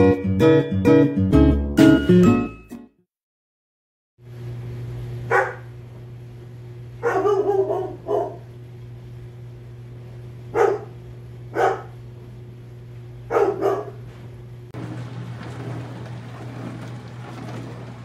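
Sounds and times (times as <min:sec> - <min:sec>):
dishwasher humming: 0:04.4 - 0:18.0
dog barking: 0:05.3 - 0:05.7, 0:07.0 - 0:08.5, 0:10.5 - 0:12.0, 0:13.3 - 0:14.1.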